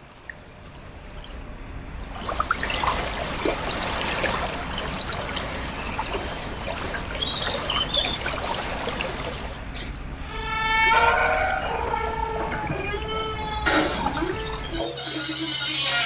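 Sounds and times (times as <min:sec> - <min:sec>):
river water rushing: 0:00.0 - 0:14.9
music: 0:13.5 - 0:16.0.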